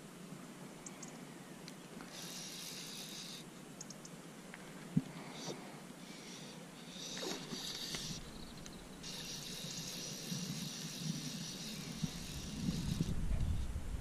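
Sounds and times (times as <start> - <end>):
fishing reel ratchet buzzing: 2.1 - 3.5, 6.1 - 13.2
low rumble: 12.6 - 14.0.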